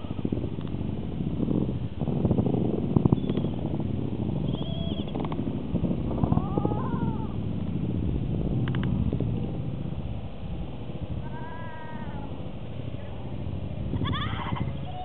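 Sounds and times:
wind buffeting microphone: 0.0s - 15.0s
rising then falling cries: 6.2s - 7.4s, 11.2s - 12.4s.

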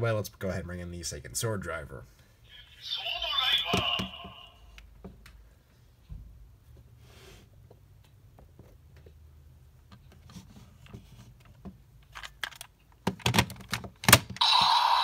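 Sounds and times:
toy speaker sound effect: 2.5s - 4.8s, 14.4s - 15.0s.

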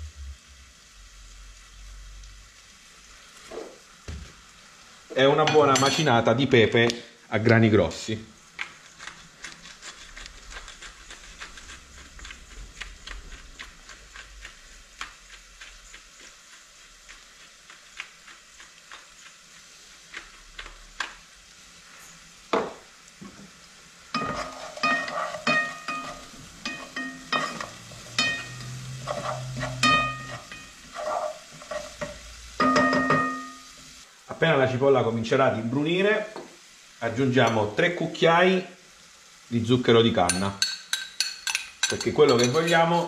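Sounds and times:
onion and garlic sizzling in oil: 0.0s - 43.0s
spoon stirring: 8.6s - 19.4s, 24.1s - 33.6s, 40.2s - 43.0s
knock: 22.5s - 22.8s.

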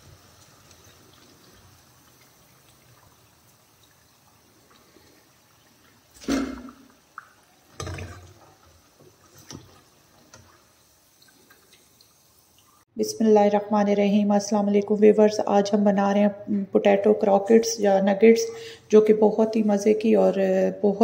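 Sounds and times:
food sizzling in hot oil: 0.0s - 12.9s.

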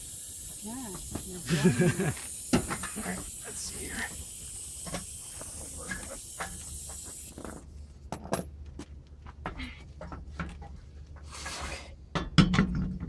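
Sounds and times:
steady hiss: 0.0s - 7.7s.

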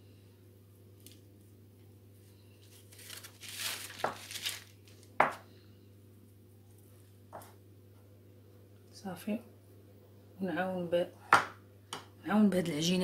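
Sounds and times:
pastry and paper crinkling: 1.0s - 1.6s, 2.2s - 5.4s.

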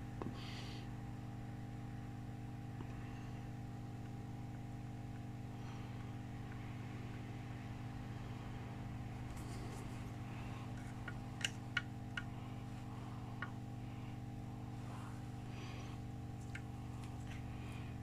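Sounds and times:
electrical hum: 0.0s - 18.0s.

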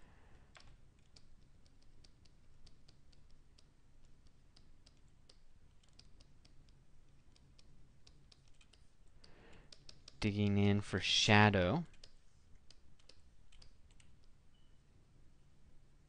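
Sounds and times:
low steady hum: 0.0s - 16.0s
computer keys clicking: 0.5s - 10.3s, 11.8s - 14.4s.

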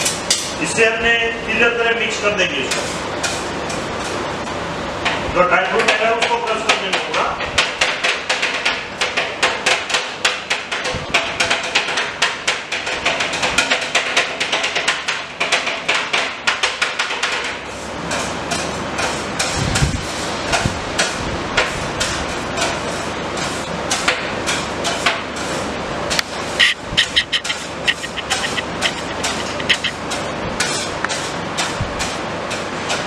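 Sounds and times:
metal spatulas tapping on steel plate: 26.6s - 31.7s.

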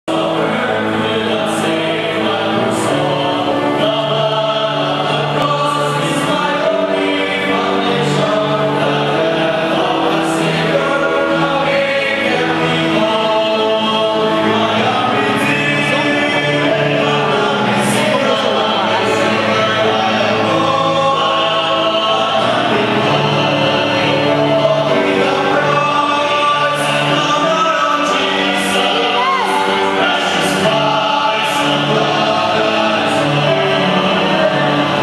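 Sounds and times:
men's choir singing a hymn: 0.1s - 35.0s.

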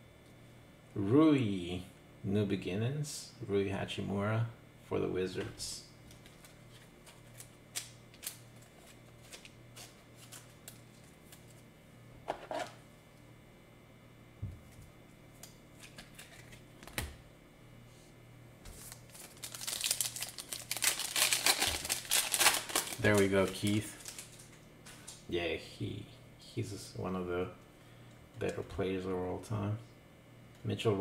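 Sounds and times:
foil wrapper crinkling: 6.1s - 11.6s, 15.8s - 16.7s, 18.7s - 25.2s.

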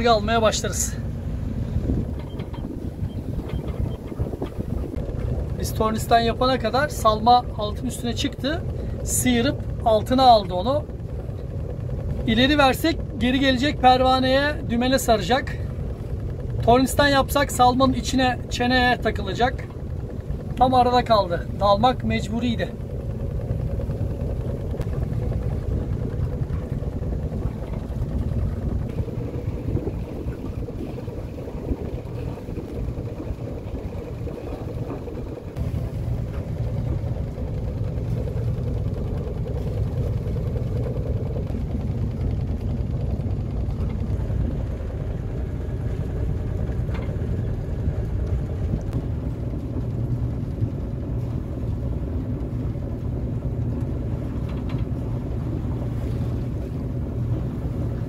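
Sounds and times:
boat engine droning: 0.0s - 58.0s.

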